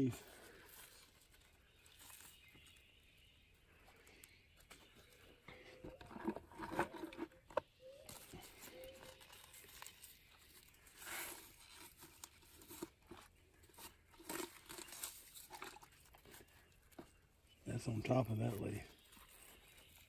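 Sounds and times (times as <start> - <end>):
leaves rustling and tearing: 0.2 - 3.3, 7.8 - 17.2, 18.3 - 20.0.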